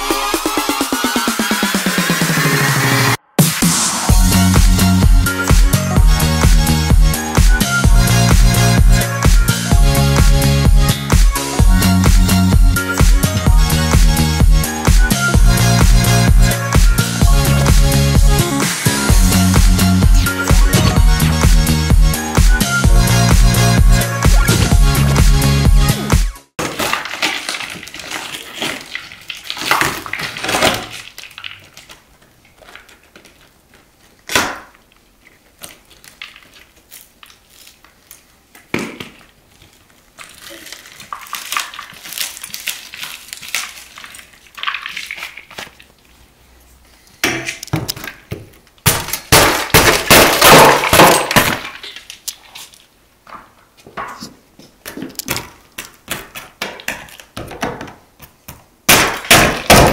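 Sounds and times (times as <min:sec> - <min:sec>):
glass crunching and cracking: 0:26.6 - 0:38.3, 0:39.7 - 0:46.1, 0:48.8 - 0:52.4, 0:58.9 - 0:59.9
small glass clicks and crackles: 0:27.0 - 0:33.5, 0:40.2 - 0:45.9.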